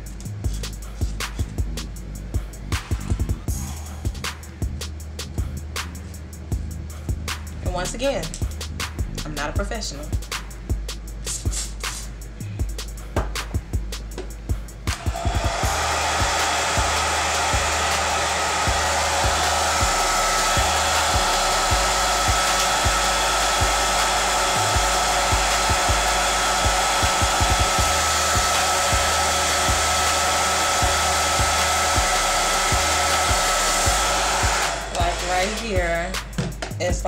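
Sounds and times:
hair dryer blowing: 14.8 - 36.6.

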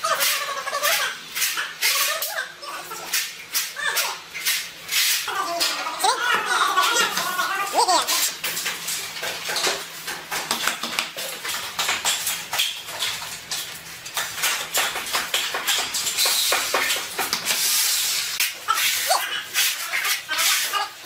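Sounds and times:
clicks and taps of tools and tiles: 8.4 - 13.6.

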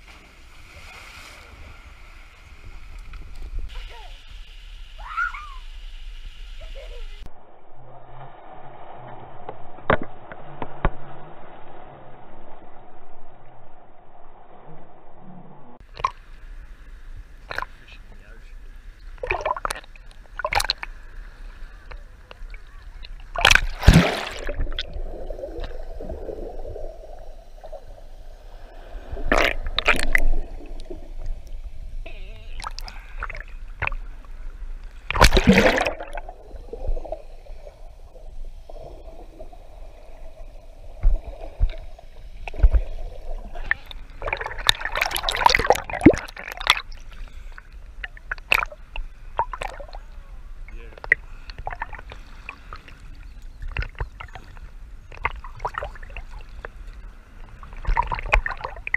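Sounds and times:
water splashing: 0.0 - 4.4, 17.4 - 18.1, 19.1 - 58.9
moving water wash: 0.0 - 7.3, 15.8 - 58.9.

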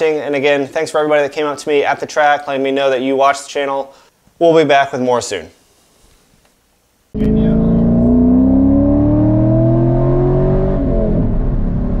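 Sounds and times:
motorcycle engine accelerating: 7.2 - 12.0.

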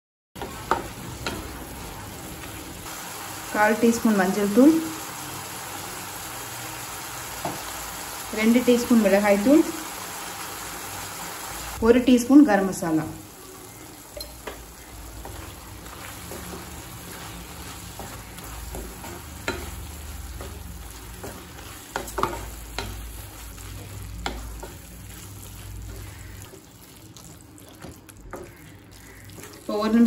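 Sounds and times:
masala sizzling in a pan: 0.4 - 30.0
spatula knocking and scraping pan: 14.2 - 25.2.

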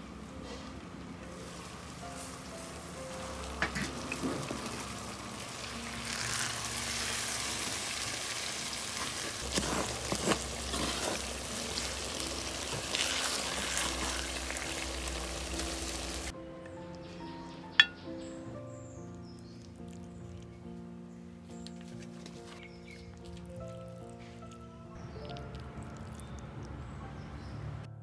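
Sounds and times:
okra sizzling while frying: 1.4 - 16.4.

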